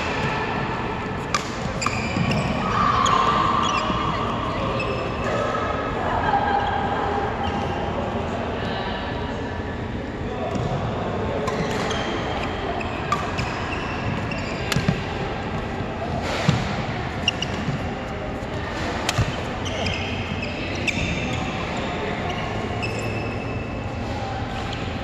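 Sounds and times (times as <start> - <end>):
shoes squeaking on court floor: 0.0 - 5.4, 11.4 - 25.0
steady background noise: 0.0 - 25.0
rackets striking shuttlecock: 1.2 - 2.4, 19.0 - 19.6.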